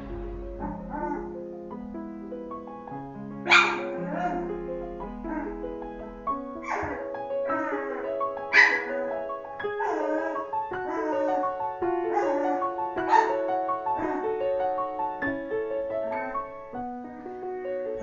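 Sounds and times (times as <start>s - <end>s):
piano music: 0.0s - 18.0s
puppies squealing and whimpering: 6.6s - 9.1s.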